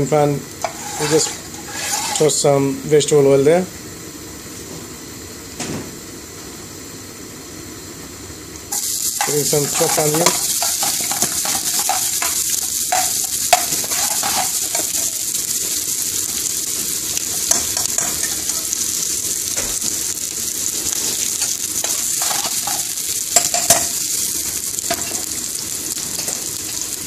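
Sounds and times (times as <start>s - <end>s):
onions sizzling in oil: 0.4s - 2.9s, 6.8s - 27.0s
metal spoon knocking on pan: 21.9s - 24.0s.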